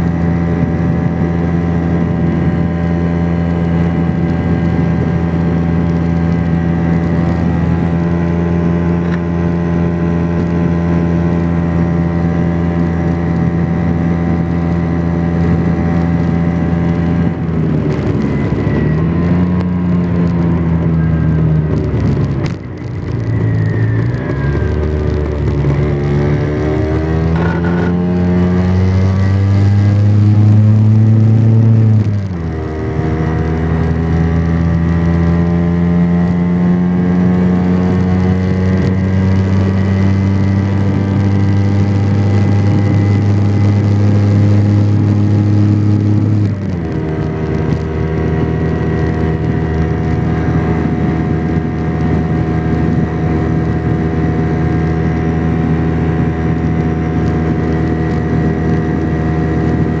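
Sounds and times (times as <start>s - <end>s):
scooter engine running: 0.0s - 60.0s.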